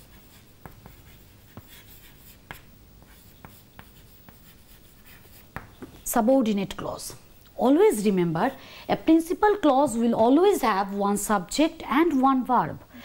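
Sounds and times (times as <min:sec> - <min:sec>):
chalk scratching on chalkboard: 0:00.0 - 0:05.9
chalk tapping on board: 0:00.0 - 0:06.0.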